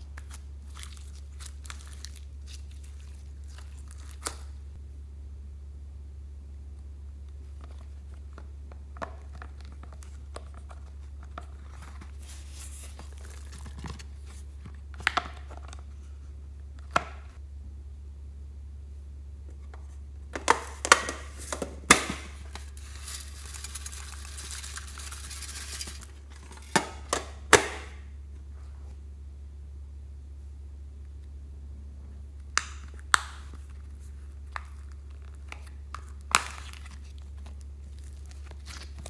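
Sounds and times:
paper crinkling: 0.0 - 4.7, 9.2 - 16.1, 21.3 - 26.8, 33.5 - 39.0
beads poured rustling: 22.6 - 26.2.

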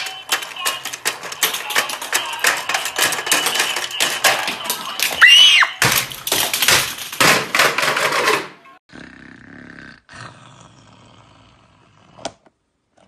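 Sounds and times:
plastic toy clicking and clattering: 0.0 - 8.8.

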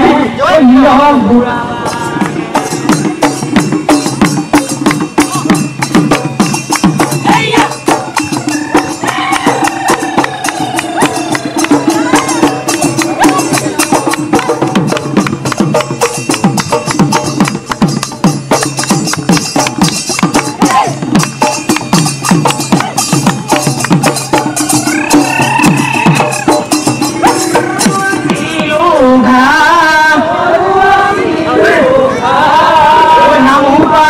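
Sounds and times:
folk dance music with percussion: 0.0 - 34.0.

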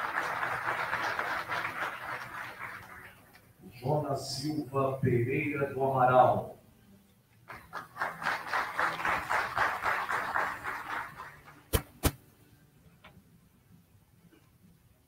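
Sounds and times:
audience applause: 0.0 - 3.3, 7.5 - 11.7.

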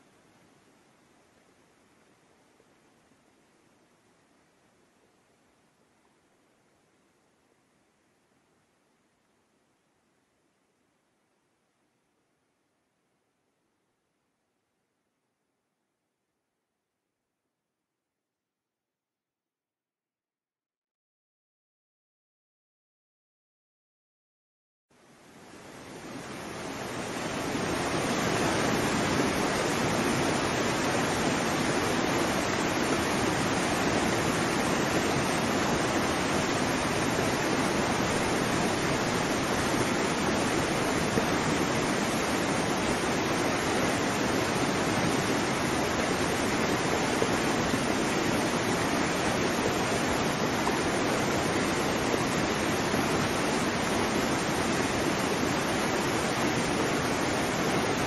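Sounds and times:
waterfall rushing: 25.8 - 58.0.

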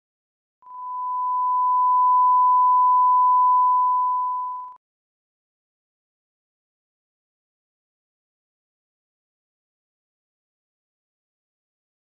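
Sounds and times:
steady test tone: 0.7 - 4.7.

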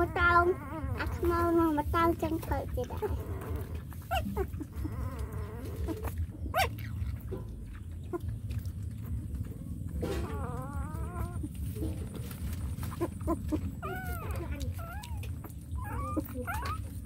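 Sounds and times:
puppy whining: 0.0 - 17.0
steady low rumble: 0.0 - 17.0.

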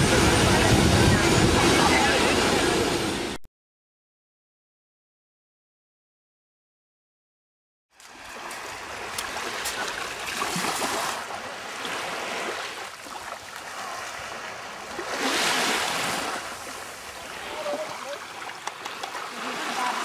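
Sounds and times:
surf washing: 0.0 - 3.4, 8.0 - 20.0
small waves lapping on shore: 8.0 - 20.0.

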